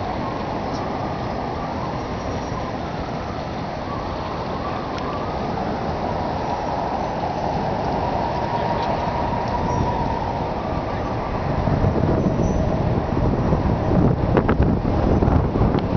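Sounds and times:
passing traffic hum: 0:00.0 - 0:15.9
wind buffeting microphone: 0:00.0 - 0:15.9.

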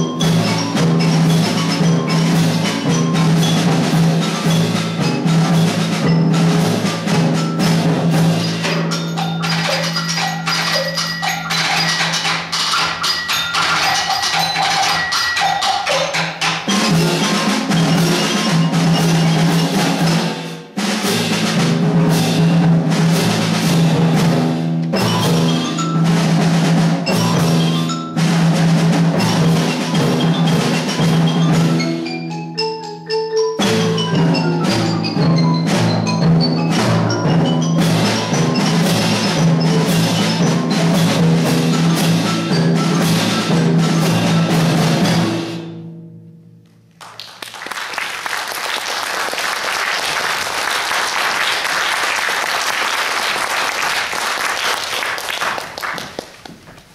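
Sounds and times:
percussion ensemble playing: 0:00.0 - 0:56.9
audience applauding: 0:47.0 - 0:56.7.

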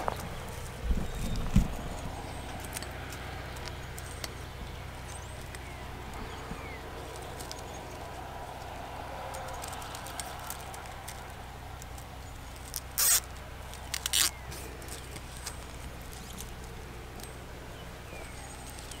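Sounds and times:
plastic zip ties clicking and rattling: 0:09.3 - 0:17.3.

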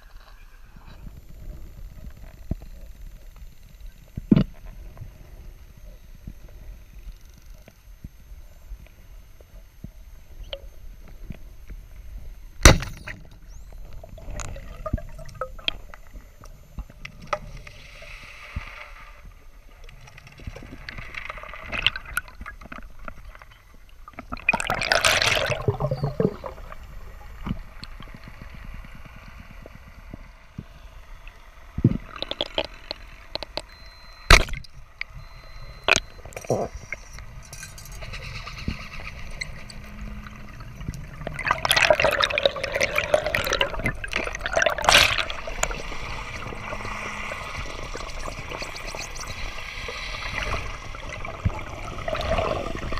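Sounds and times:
bubbling underwater: 0:13.9 - 0:16.0, 0:24.1 - 0:27.6, 0:31.8 - 0:33.5, 0:39.2 - 0:52.9
underwater water rush: 0:39.2 - 0:52.9.

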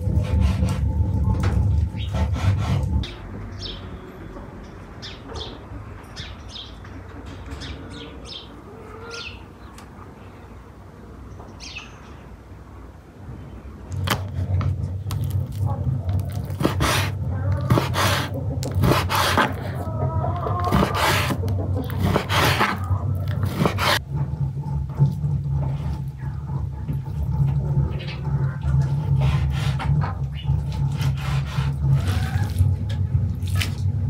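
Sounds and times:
small birds chirping: 0:03.0 - 0:12.4
knife slicing raw chicken: 0:16.1 - 0:19.7, 0:20.6 - 0:24.0.

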